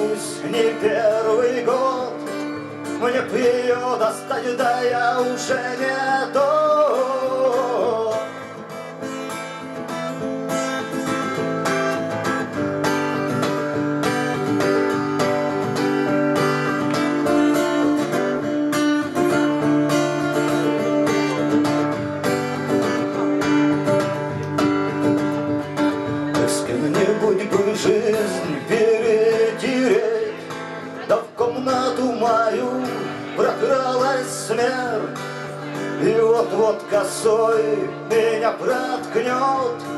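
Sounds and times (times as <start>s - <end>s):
man singing: 0.0s - 8.8s, 26.2s - 39.9s
acoustic guitar strumming: 0.0s - 39.9s.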